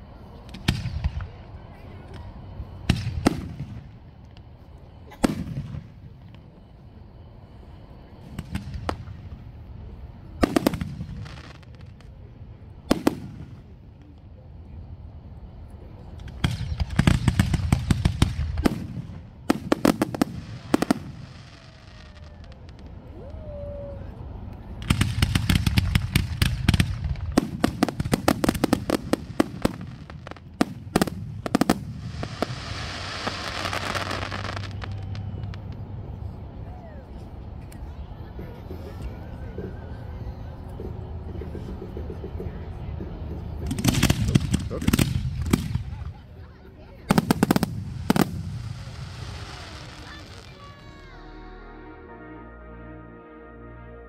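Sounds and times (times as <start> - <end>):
fireworks bangs: 2.1 - 6.7, 10.2 - 14.2, 16.1 - 23.1, 24.8 - 36.0, 43.6 - 46.3, 47.0 - 51.4.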